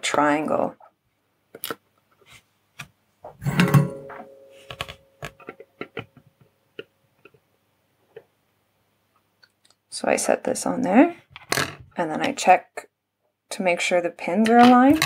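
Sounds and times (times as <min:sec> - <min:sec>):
metallic clunk: 0:03.4 - 0:05.0
faint ringing tone: 0:03.8 - 0:05.2.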